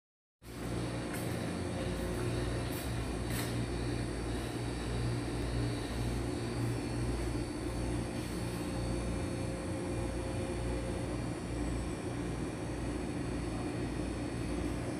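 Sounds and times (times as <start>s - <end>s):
low mechanical hum: 0.4s - 14.9s.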